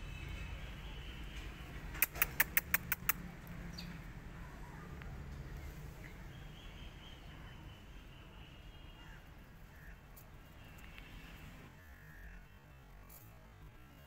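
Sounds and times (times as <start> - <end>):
sharp clicks: 2.0 - 3.2.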